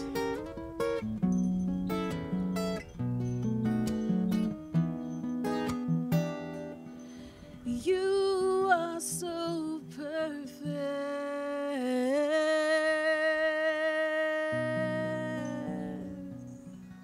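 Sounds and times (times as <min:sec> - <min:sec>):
acoustic guitar strumming: 0:00.0 - 0:17.0
woman singing: 0:07.6 - 0:16.5.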